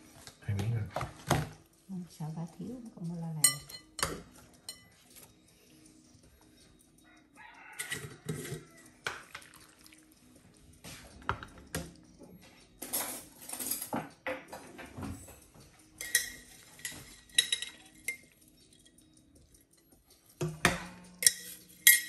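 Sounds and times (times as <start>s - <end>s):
ladle clinking against ceramic bowls: 3.4s - 5.0s, 7.8s - 9.6s, 16.0s - 18.9s, 20.4s - 22.0s.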